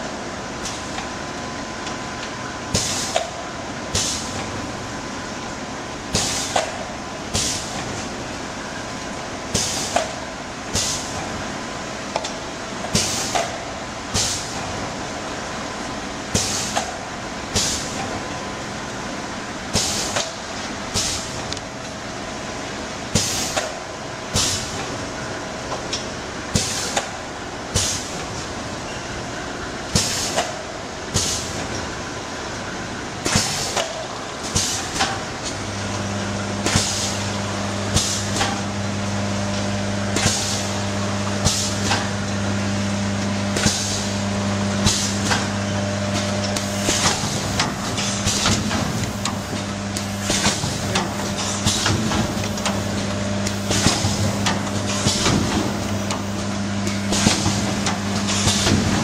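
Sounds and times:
steady low hum: 33.9 - 59.0.

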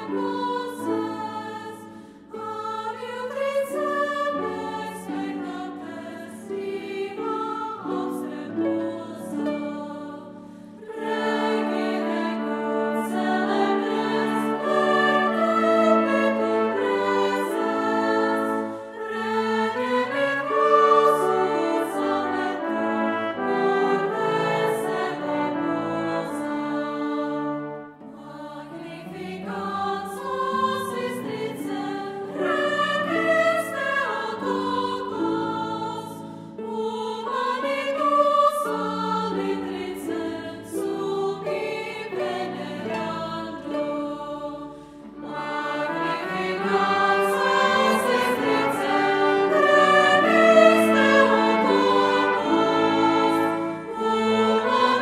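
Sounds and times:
girls' choir singing a hymn: 0.0 - 55.0
brass accompaniment: 12.0 - 28.0, 45.9 - 55.0.

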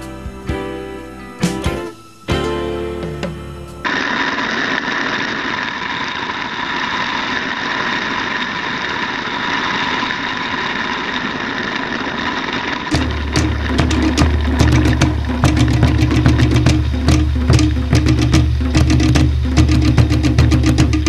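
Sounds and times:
acoustic guitar music: 0.0 - 3.9, 12.9 - 21.0
shower water running: 3.8 - 21.0.

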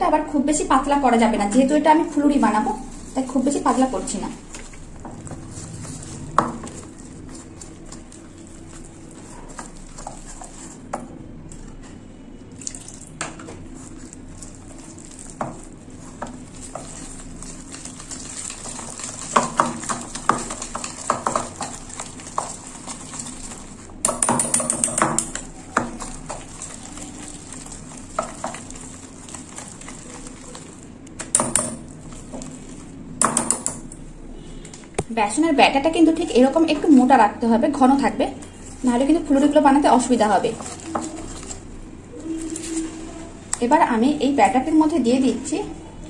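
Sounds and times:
whisk beating batter in metal bowl: 2.5 - 11.0, 13.4 - 33.8.

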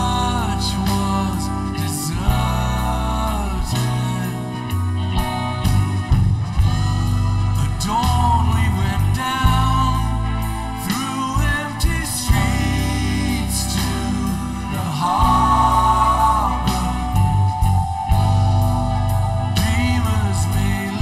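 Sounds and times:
person singing lead: 0.0 - 4.9, 7.6 - 21.0
live rock band playing: 0.0 - 21.0
backing singers harmonizing: 11.8 - 21.0.

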